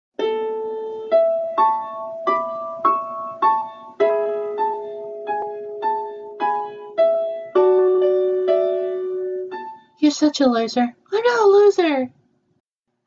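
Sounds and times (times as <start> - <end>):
slow keyboard melody: 0.2 - 10.0.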